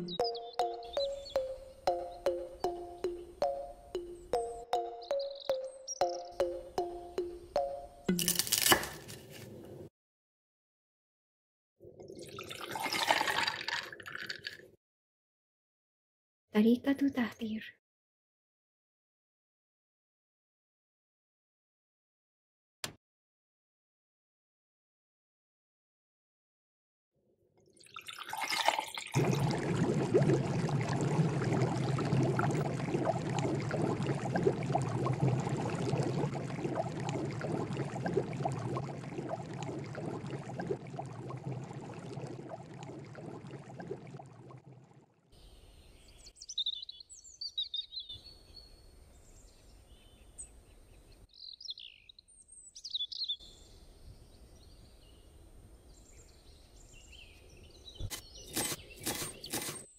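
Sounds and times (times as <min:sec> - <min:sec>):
birds chirping: 0:00.0 - 0:08.1
water splashing in a steel pot: 0:12.0 - 0:14.6, 0:27.8 - 0:45.0.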